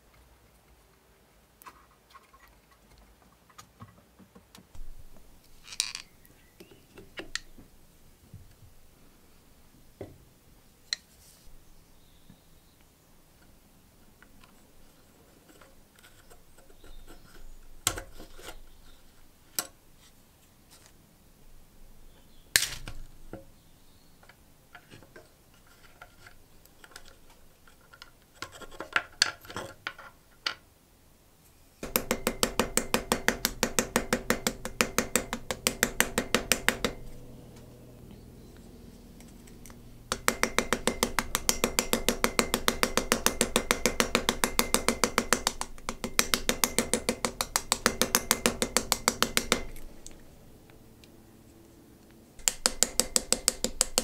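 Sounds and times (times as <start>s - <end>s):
small hammer tapping metal pin: 31.8s - 37.2s, 39.5s - 50.2s, 52.4s - 54.0s.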